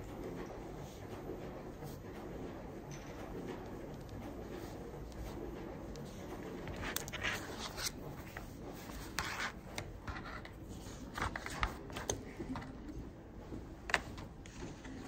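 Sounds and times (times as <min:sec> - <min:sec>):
pen scratching on paper: 0:06.0 - 0:11.5
notebook rustling: 0:06.6 - 0:12.5.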